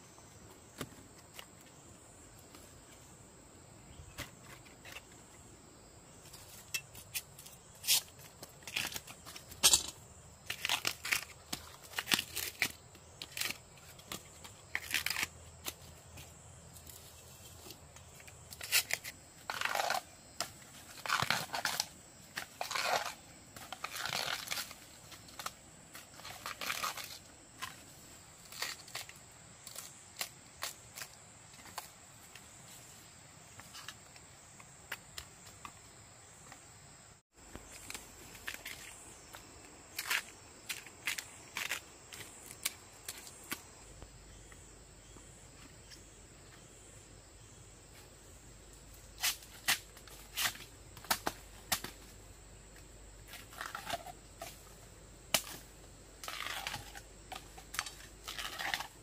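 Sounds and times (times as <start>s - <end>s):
high insect trill: 0.0s - 59.0s
plant material crackling and tearing: 14.7s - 15.5s, 18.6s - 20.0s, 22.6s - 24.8s, 26.2s - 27.2s, 56.2s - 57.0s.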